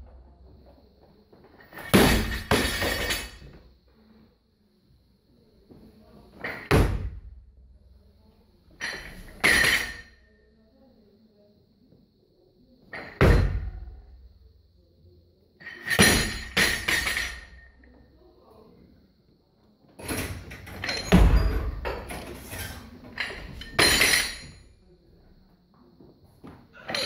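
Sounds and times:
barbell dropped and clanging: 1.6s - 3.5s, 8.8s - 10.2s, 15.6s - 17.8s, 20.1s - 24.6s
heavy plate and bar impacts: 1.8s - 3.5s.

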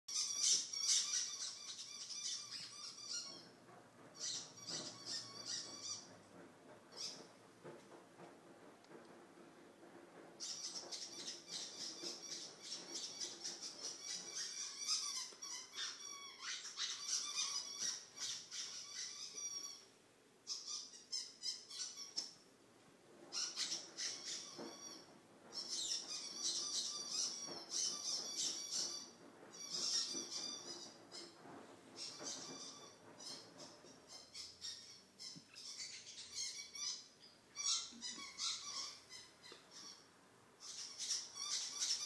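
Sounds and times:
squeaky dog toy squeaking: 37.6s - 40.0s.

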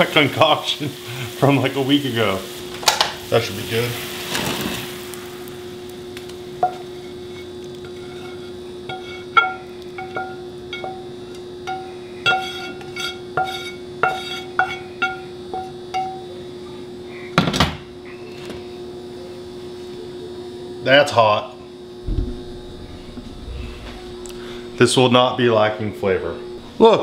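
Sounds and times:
steady hum: 4.8s - 8.1s, 21.9s - 27.0s
metal spatula scraping a frying pan: 12.3s - 14.8s
pan ringing: 22.1s - 25.4s.

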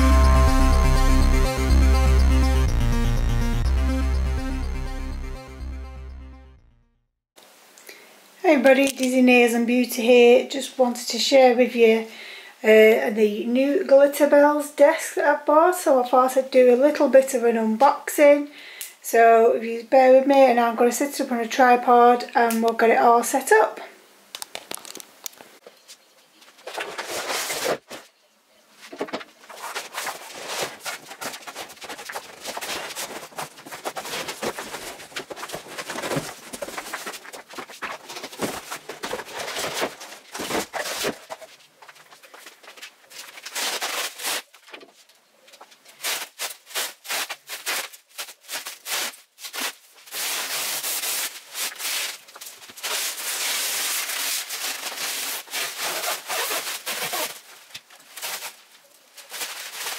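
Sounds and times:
plastic wrap crinkling and tearing: 24.4s - 25.4s, 29.1s - 45.0s, 45.8s - 59.9s.

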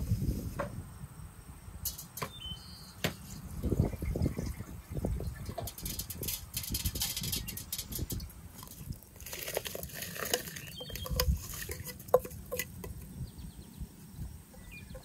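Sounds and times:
water splashing through colander: 3.6s - 13.0s.

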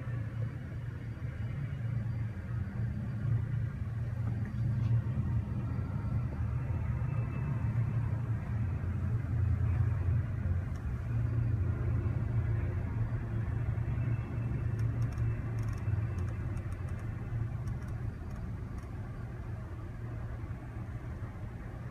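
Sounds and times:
motor vehicle rumble: 0.0s - 21.9s
faint light ticks: 14.8s - 19.0s.

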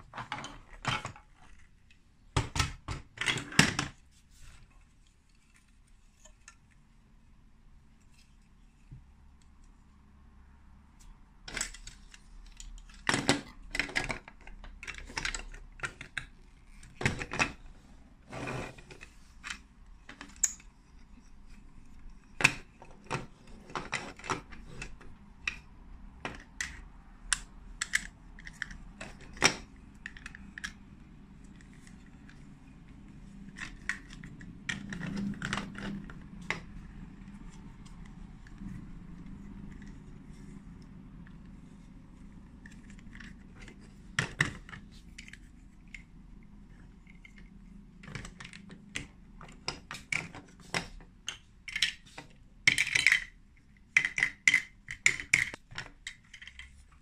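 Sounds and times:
plastic toy bricks clicking: 26.3s - 30.8s, 46.8s - 56.8s.

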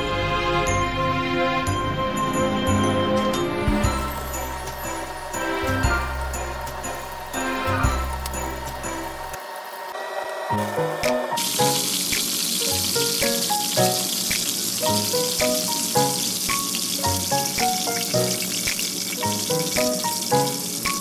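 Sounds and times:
background music with bass line: 0.0s - 9.3s
food sizzling in hot oil: 4.0s - 21.0s.

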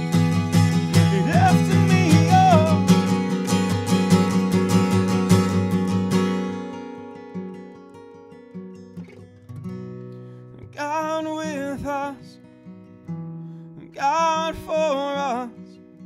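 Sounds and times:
acoustic guitar picked: 0.0s - 16.0s
man singing: 0.7s - 3.4s, 10.6s - 12.5s, 13.8s - 15.9s.

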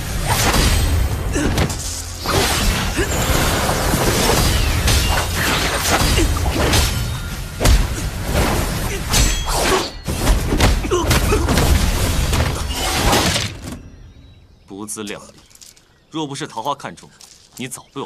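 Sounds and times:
crackling energy blasts: 0.0s - 13.6s
background film score: 0.0s - 18.0s.

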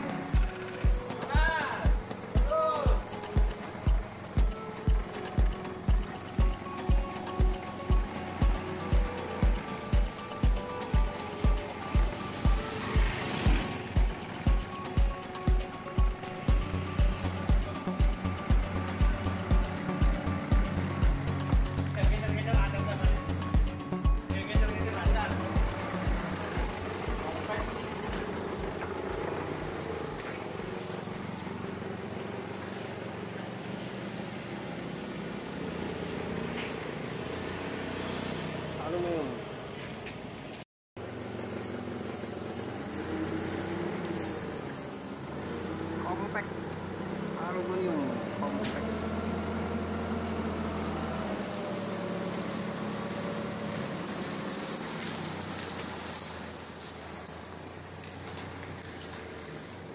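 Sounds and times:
vehicle engine idling: 0.0s - 59.9s.

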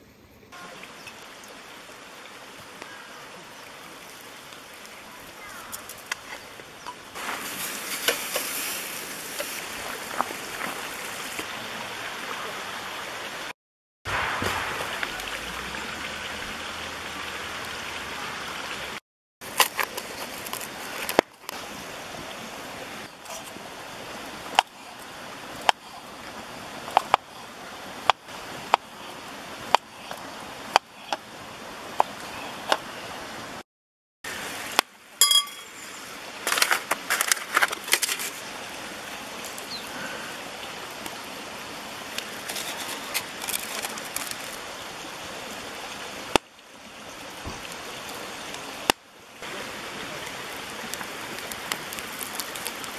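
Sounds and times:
rushing outdoor background noise: 0.0s - 13.5s.

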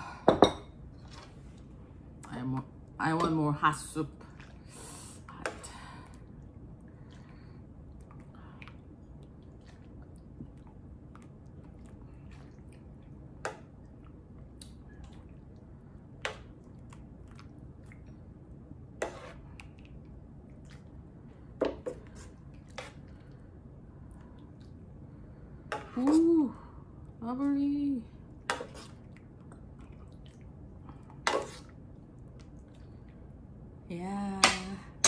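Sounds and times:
low steady hum: 0.0s - 35.0s
chewing and wet mouth sounds: 6.1s - 15.8s, 16.4s - 18.6s, 19.4s - 21.3s, 28.2s - 33.4s.

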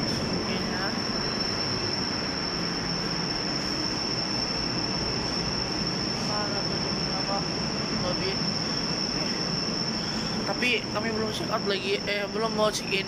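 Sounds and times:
high-pitched whine: 0.0s - 13.0s.

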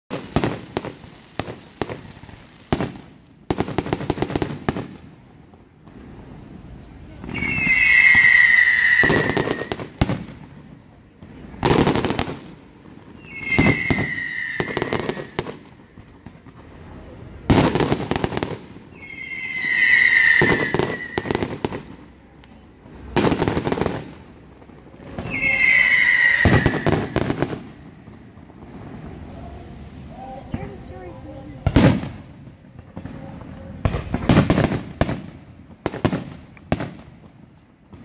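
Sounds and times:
fireworks booming and crackling: 0.1s - 38.0s
high falling whistle: 7.3s - 9.8s, 13.2s - 15.4s, 19.0s - 21.6s, 25.2s - 27.3s.

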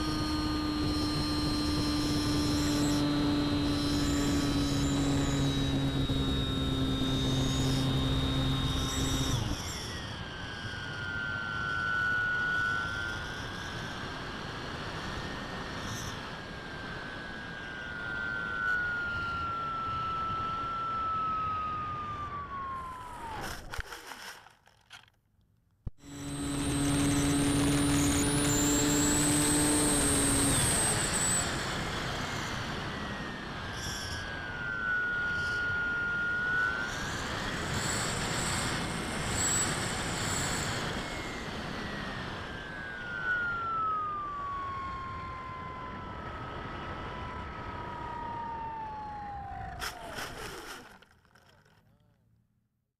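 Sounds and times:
model plane motor whining: 0.0s - 25.2s, 26.0s - 51.9s.

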